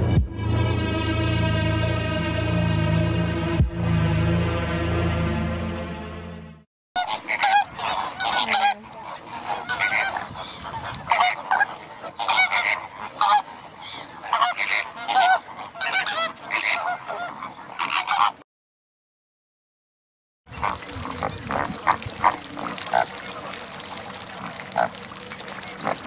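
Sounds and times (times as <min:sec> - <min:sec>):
music: 0:00.0 - 0:06.6
flamingos honking: 0:07.0 - 0:18.4, 0:20.5 - 0:26.0.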